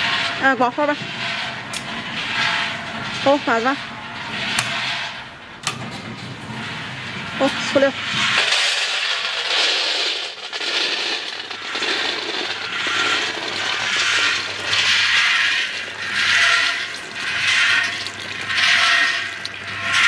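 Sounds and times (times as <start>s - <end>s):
peanuts pouring into a steel bowl: 7.6s - 20.0s.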